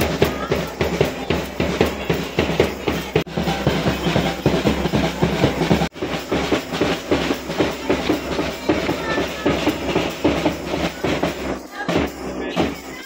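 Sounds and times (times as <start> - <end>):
marching snare drum: 0.0 - 13.0
people clapping: 7.5 - 10.4.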